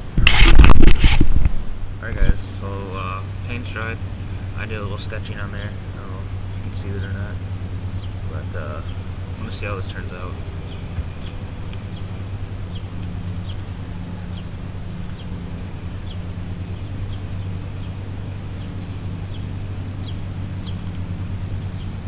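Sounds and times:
low machine hum: 0.0 - 22.0
small bird chirping: 5.6 - 22.0.

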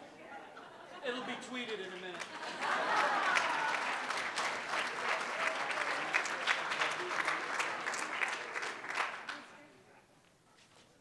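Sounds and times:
audience applause: 1.7 - 9.6.

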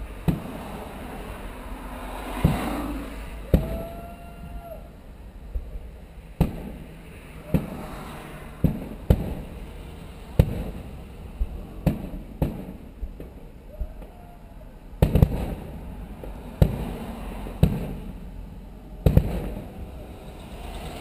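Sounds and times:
fireworks booming: 0.0 - 1.4, 2.0 - 4.8, 5.5 - 21.0.

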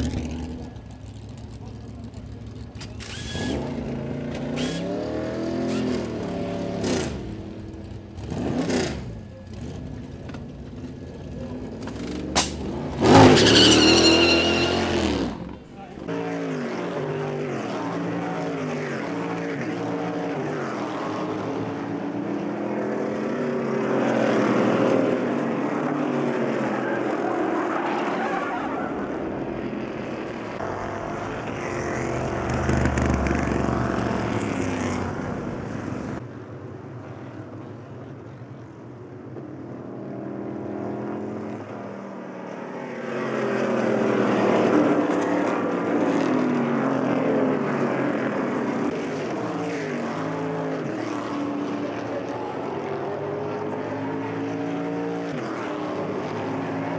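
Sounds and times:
deep engine rumble: 0.0 - 4.1
race cars passing: 0.0 - 56.9.

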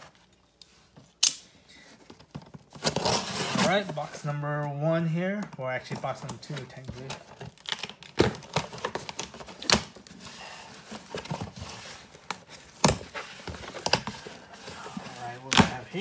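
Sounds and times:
cardboard box being handled: 8.7 - 16.0.

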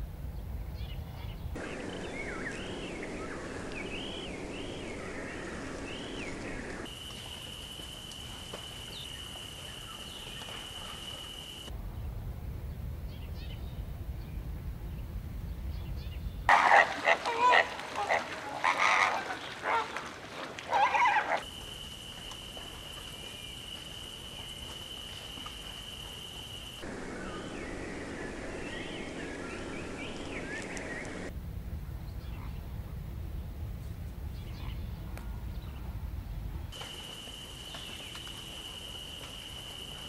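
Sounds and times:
low hiss: 1.6 - 15.8, 21.4 - 34.3
loud animal calls: 16.5 - 21.5
steady high whine: 21.5 - 31.3.

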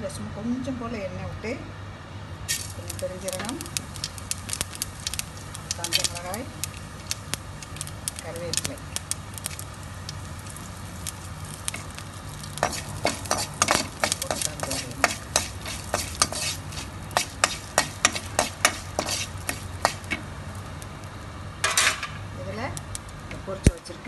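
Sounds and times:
spices crackling in hot oil: 2.4 - 24.0
spatula stirring in pan: 2.5 - 20.7.

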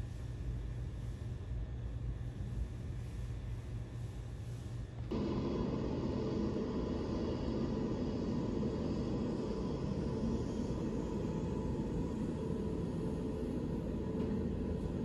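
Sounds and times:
jet engines rumbling and whining: 5.0 - 15.0.

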